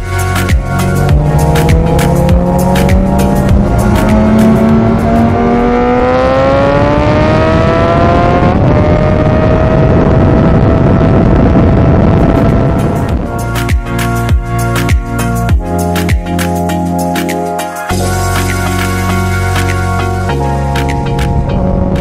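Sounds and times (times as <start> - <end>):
motorcycle engine accelerating: 0.5 - 13.4
wind rush on microphone: 0.6 - 13.5, 21.0 - 22.0.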